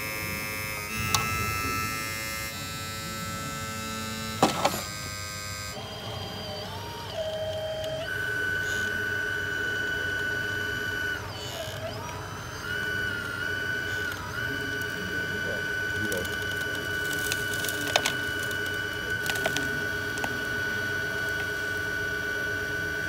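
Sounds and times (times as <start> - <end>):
small electric motors whining: 0.0 - 23.0.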